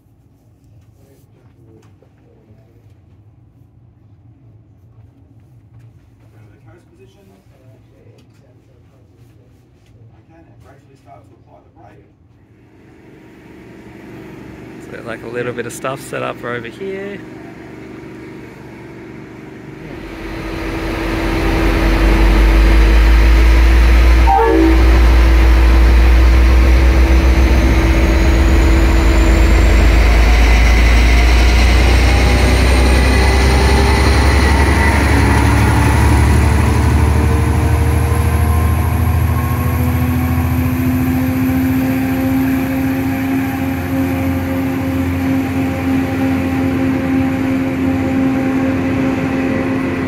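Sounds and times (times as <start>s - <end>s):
diesel locomotive passing: 12.8s - 50.0s
train carriages rolling by: 14.8s - 50.0s.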